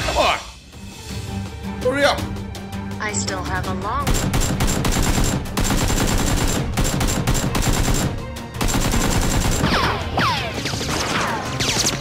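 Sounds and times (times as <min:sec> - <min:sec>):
rapid automatic gunfire: 0:04.0 - 0:09.8.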